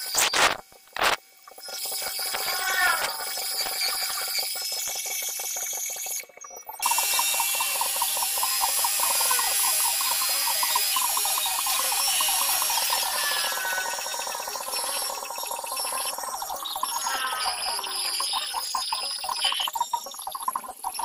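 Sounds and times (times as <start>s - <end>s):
metal lathe cutting metal: 6.8s - 18.9s.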